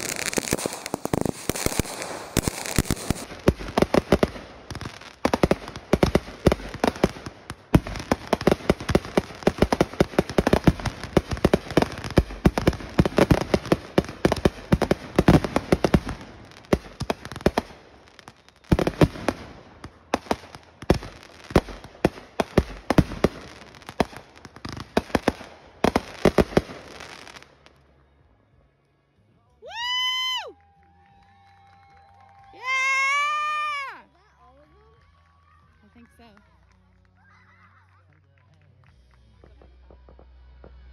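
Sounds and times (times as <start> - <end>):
fireworks bangs and crackle: 0.0 - 27.8, 39.2 - 40.9.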